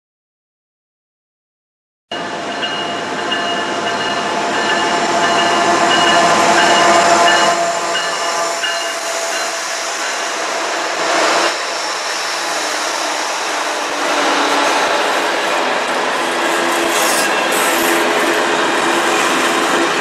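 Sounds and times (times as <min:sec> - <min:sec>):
diesel locomotive engines running: 0:02.2 - 0:20.0
freight cars rolling on rails: 0:02.2 - 0:20.0.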